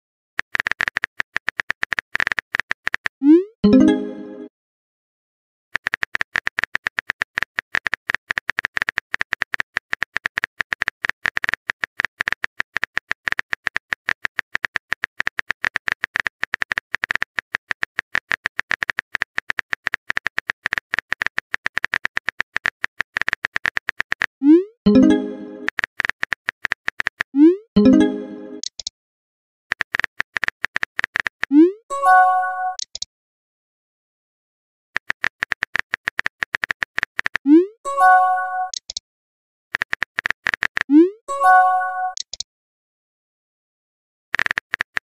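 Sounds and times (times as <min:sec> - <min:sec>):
message sent chime: 0:03.6 - 0:04.5, 0:24.9 - 0:25.7, 0:27.8 - 0:28.6, 0:31.9 - 0:32.8, 0:37.9 - 0:38.8, 0:41.3 - 0:42.2
phone keyboard key clicks: 0:05.8 - 0:24.3, 0:32.8 - 0:33.1, 0:38.7 - 0:39.0, 0:42.2 - 0:42.4.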